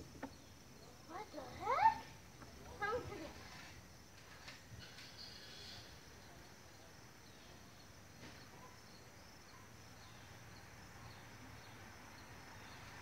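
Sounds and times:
faint high chirping: 4.8s - 13.0s.

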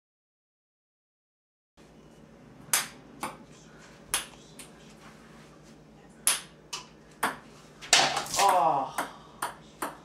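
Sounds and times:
ping-pong ball bouncing: 6.2s - 10.0s.

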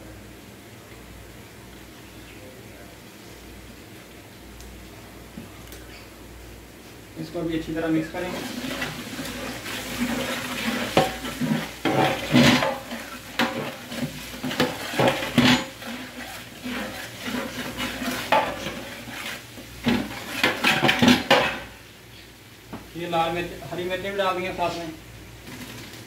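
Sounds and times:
masala sizzling: 6.2s - 26.0s
metal ladle scraping a pot: 8.3s - 21.7s.

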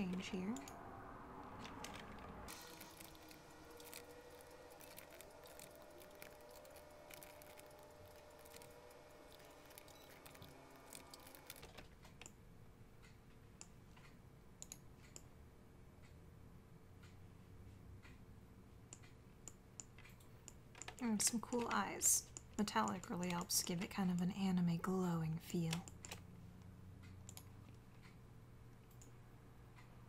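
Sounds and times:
keyboard and mouse clicks: 1.6s - 4.1s, 4.8s - 12.4s, 13.0s - 15.3s, 18.9s - 24.3s, 25.6s - 26.3s, 27.0s - 28.2s, 28.8s - 29.2s.

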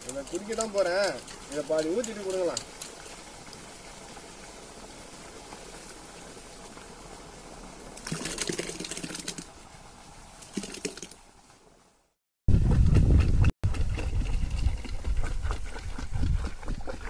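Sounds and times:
juice pouring into metal bowl: 8.0s - 9.5s.

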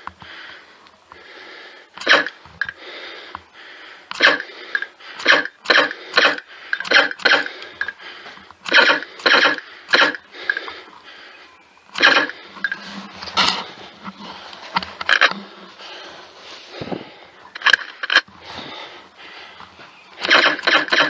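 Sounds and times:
airsoft gun shots: 2.0s - 2.4s, 4.2s - 4.4s, 5.2s - 7.6s, 8.7s - 10.2s, 12.0s - 12.4s.

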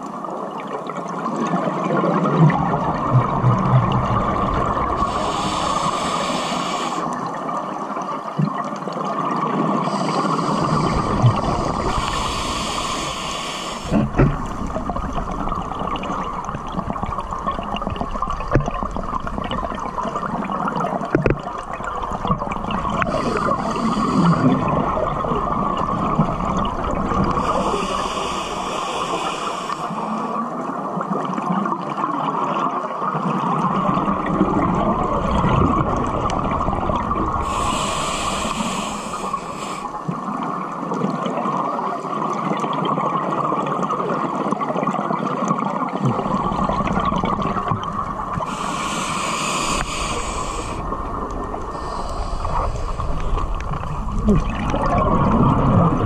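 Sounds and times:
steady water noise: 0.0s - 56.0s
gurgling exhalation bubbles: 1.4s - 6.2s, 9.3s - 13.0s, 33.5s - 40.4s, 45.8s - 56.0s
regulator hissing inhalation: 4.9s - 7.2s, 9.8s - 14.6s, 23.0s - 24.6s, 27.3s - 30.3s, 37.4s - 40.0s, 48.3s - 51.0s, 51.6s - 53.6s.

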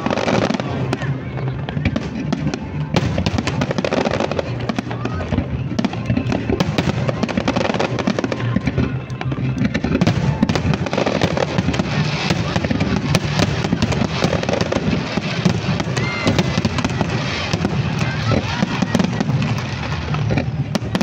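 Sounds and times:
fireworks crackling and bursting: 0.0s - 21.0s.

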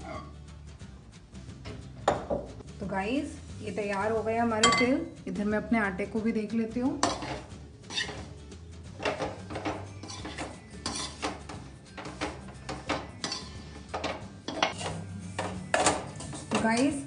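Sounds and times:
metal spatula scraping a pan: 0.0s - 0.4s, 6.9s - 17.0s.

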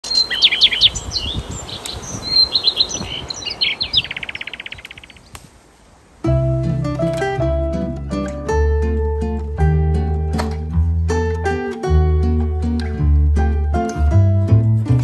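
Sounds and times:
fast bird trill: 0.0s - 5.3s
songbirds chirping: 0.0s - 14.0s
acoustic guitar music: 6.2s - 15.0s.

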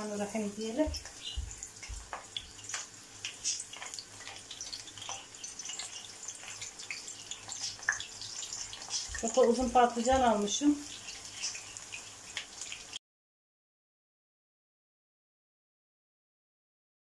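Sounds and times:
food sizzling in hot oil: 0.0s - 13.0s
oil popping and crackling: 0.1s - 13.0s.

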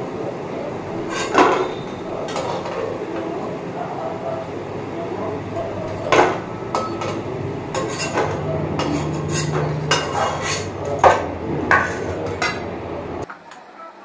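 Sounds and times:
metal spatula clinking in a pan: 5.8s - 12.7s.

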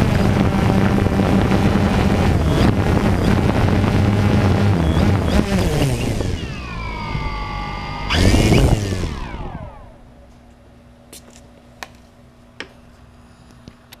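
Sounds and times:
drone rotors spinning down: 0.0s - 10.1s.

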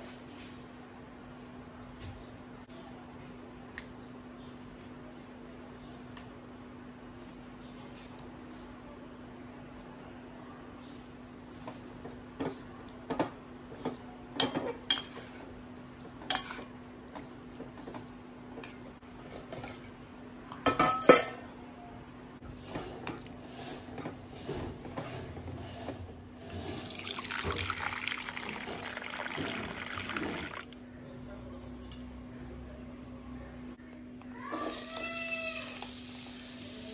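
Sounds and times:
water pouring into a steel bowl: 26.8s - 30.7s.

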